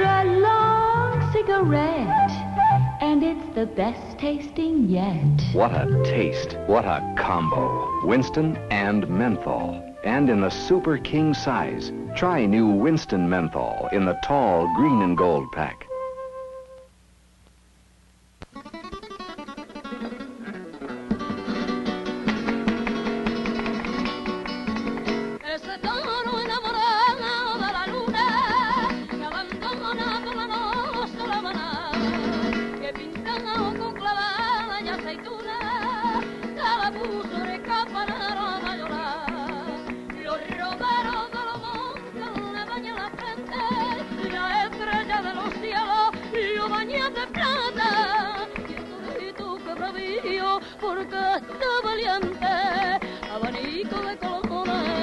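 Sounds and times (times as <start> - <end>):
woman singing ornamented melody: 0.0 - 5.4
strummed guitar chords: 5.2 - 16.8.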